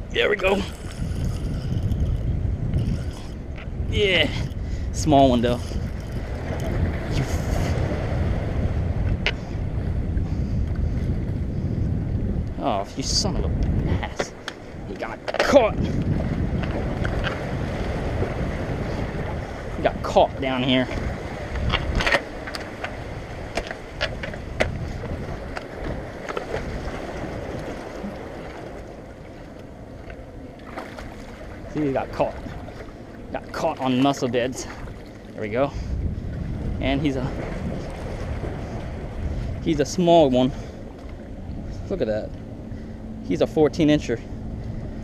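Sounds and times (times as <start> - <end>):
waves against rocks: 0.0 - 9.6, 12.6 - 41.2
wind buffeting the microphone: 0.0 - 45.0
sharp splashes: 30.6 - 34.0.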